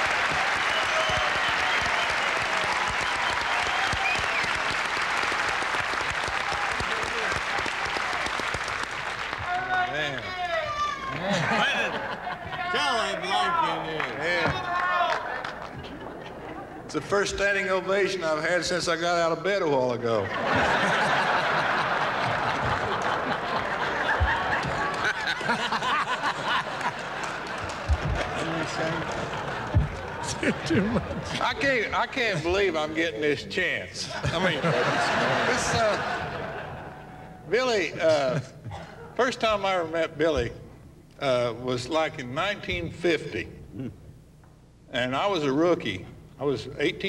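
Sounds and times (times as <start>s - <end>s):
large audience applauding: 0.0s - 10.4s, 21.0s - 30.4s
audience laughing: 11.2s - 13.2s, 20.1s - 31.6s, 34.1s - 37.3s.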